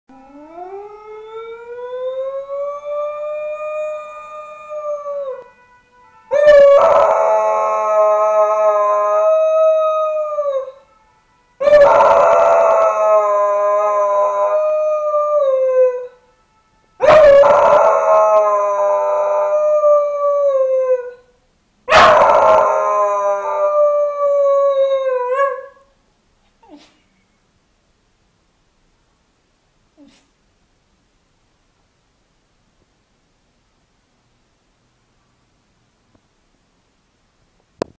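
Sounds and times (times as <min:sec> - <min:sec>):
fire engine siren: 0:00.1 - 0:21.3, 0:21.9 - 0:25.8
dog howling: 0:17.0 - 0:21.2, 0:21.9 - 0:25.8.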